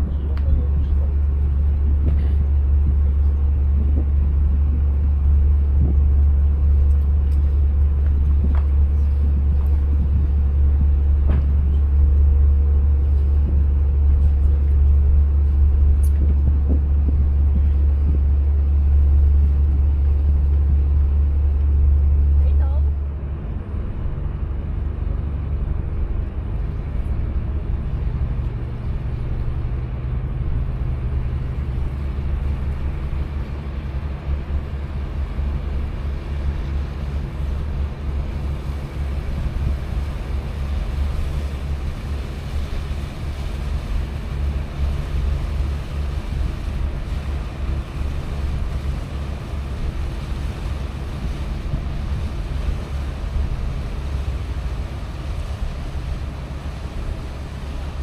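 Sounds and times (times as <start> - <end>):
ship engine low rumble: 0.0 - 58.0
wind buffeting microphone: 0.0 - 58.0.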